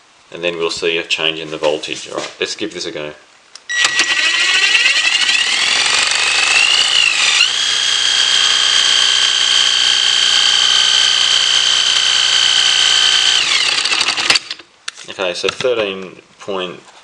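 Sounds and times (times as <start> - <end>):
impact driver motor whine: 3.7 - 14.6.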